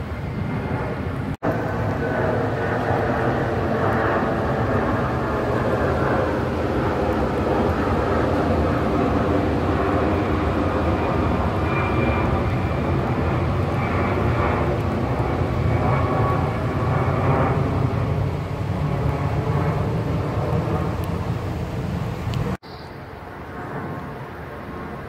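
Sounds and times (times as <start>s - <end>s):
jet airliner rumble overhead: 0.0s - 25.0s.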